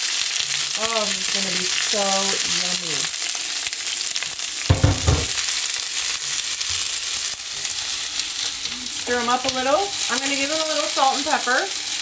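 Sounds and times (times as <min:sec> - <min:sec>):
vegetables sizzling in oil: 0:00.0 - 0:12.0
short low thud: 0:04.7 - 0:05.4.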